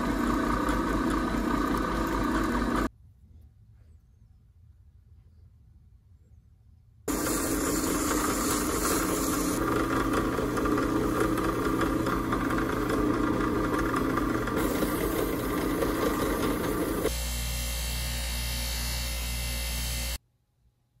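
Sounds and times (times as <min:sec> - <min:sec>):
buffing wheel motor hum: 0:00.0 - 0:02.9, 0:07.1 - 0:20.2
drill press motor: 0:00.0 - 0:02.9, 0:07.1 - 0:20.2
sandpaper rasping on metal: 0:07.1 - 0:09.6.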